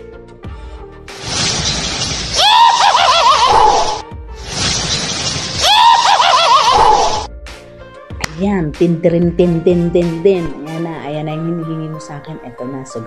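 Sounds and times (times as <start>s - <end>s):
witch cackling laugh: 2.4s - 4.0s, 5.6s - 7.3s.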